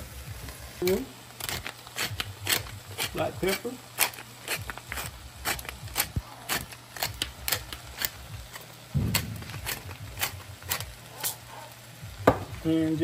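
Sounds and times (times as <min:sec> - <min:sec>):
low thump: 0:09.0 - 0:09.9.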